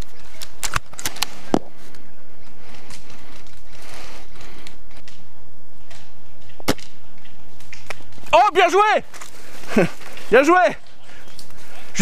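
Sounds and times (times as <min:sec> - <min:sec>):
handling rustling: 0:09.0 - 0:10.5.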